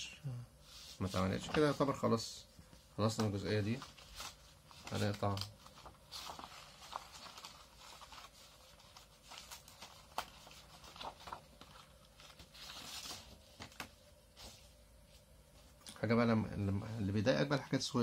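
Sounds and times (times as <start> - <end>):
paper rustling and crackling: 0.7 - 2.2, 3.0 - 14.8.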